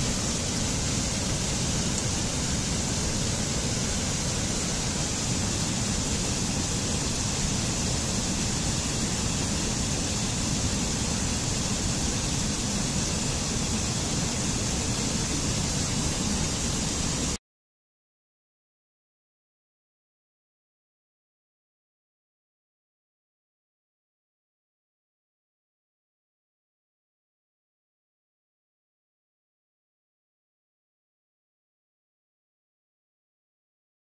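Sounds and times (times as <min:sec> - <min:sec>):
waterfall rushing: 0:00.0 - 0:17.4.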